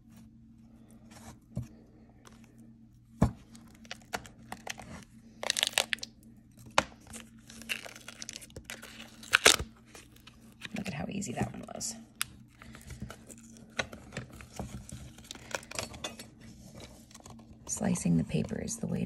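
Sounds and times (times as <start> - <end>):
cardboard rustling and tearing: 7.0 - 11.7, 12.9 - 15.8.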